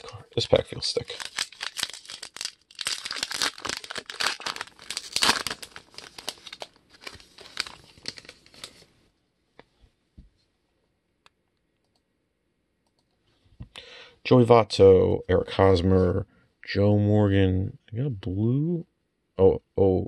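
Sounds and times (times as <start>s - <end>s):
wrapper tearing and crinkling: 0.8s - 8.9s.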